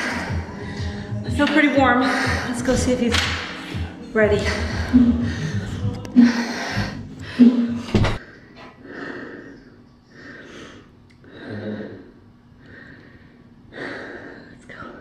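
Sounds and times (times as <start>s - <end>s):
person breathing hard: 0.0s - 1.2s, 1.9s - 2.7s, 3.4s - 15.0s.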